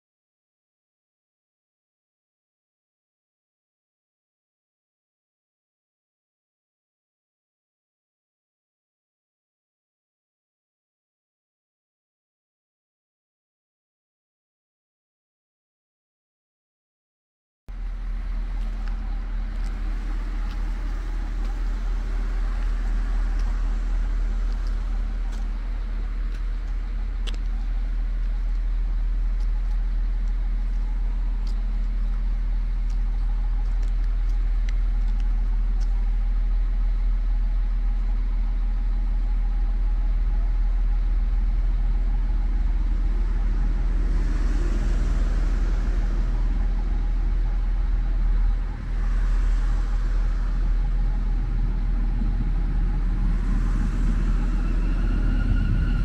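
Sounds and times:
train diesel engines droning: 0:17.7 - 0:56.0.

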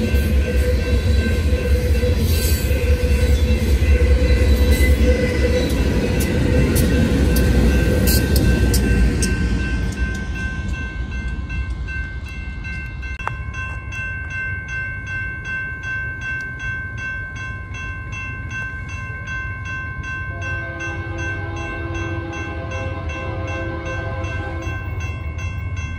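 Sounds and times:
crossing warning bells ringing: 0:00.0 - 0:25.9
freight train rumble: 0:00.0 - 0:25.9
locomotive horn: 0:20.3 - 0:25.0.

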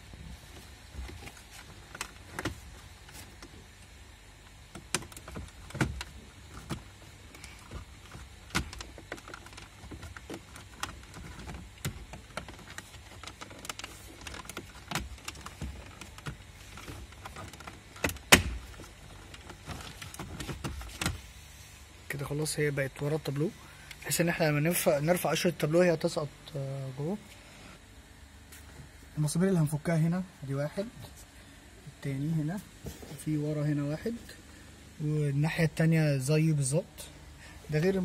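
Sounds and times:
hard plastic clicks and knocks: 0:04.7 - 0:21.2.

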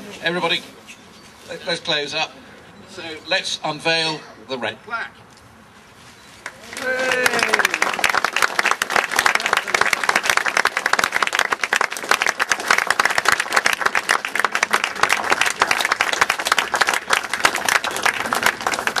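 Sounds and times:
crowd applauding: 0:06.4 - 0:19.0.

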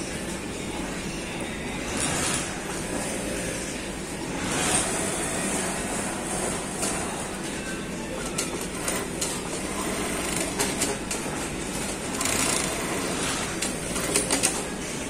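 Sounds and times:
workshop machinery hum: 0:00.0 - 0:15.0
sewing machine running: 0:01.8 - 0:03.6, 0:04.2 - 0:07.3, 0:08.4 - 0:15.0.

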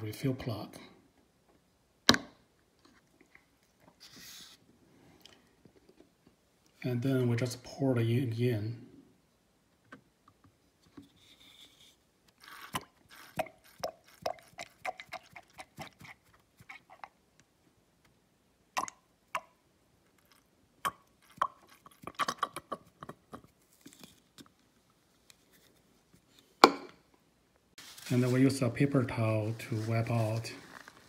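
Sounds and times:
ink gurgling pops and clicks: 0:18.8 - 0:19.5.

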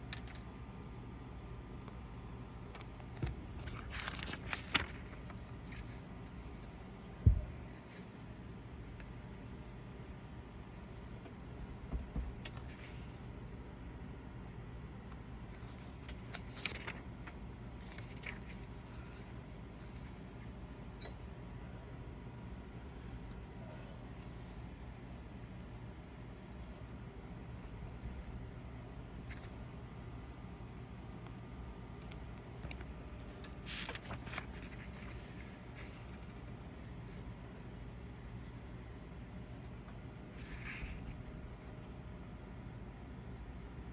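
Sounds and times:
low background hum: 0:00.0 - 0:43.9
paper rustling: 0:00.1 - 0:00.4, 0:02.8 - 0:08.1, 0:15.5 - 0:20.5, 0:29.2 - 0:29.6, 0:32.4 - 0:37.2, 0:40.0 - 0:42.0
notebook pages clicking and tapping: 0:02.8 - 0:06.0, 0:11.2 - 0:13.0, 0:15.6 - 0:19.0, 0:32.0 - 0:36.4.

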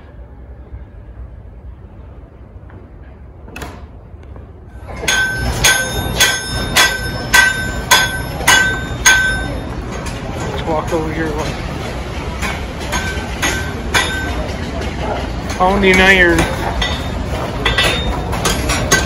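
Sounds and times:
hammer striking anvil: 0:04.8 - 0:11.5, 0:12.4 - 0:14.6, 0:15.4 - 0:19.0.

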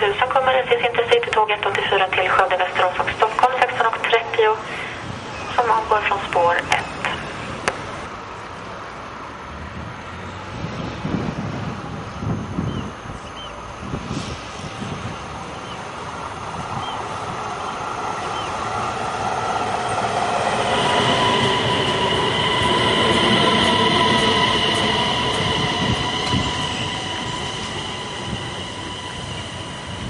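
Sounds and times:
train wheels rumbling on rails: 0:00.0 - 0:30.0
high whine: 0:13.9 - 0:30.0.

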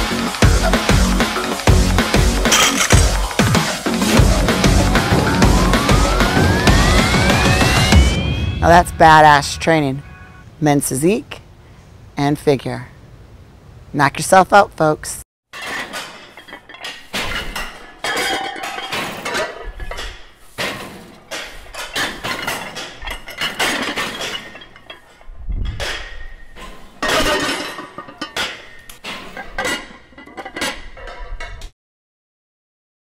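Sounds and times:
metallic clanking and clinking: 0:02.4 - 0:03.4, 0:15.6 - 0:31.6.

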